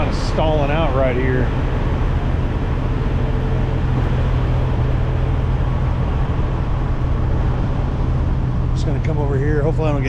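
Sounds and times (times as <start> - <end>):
truck diesel engine idling: 0.0 - 10.0.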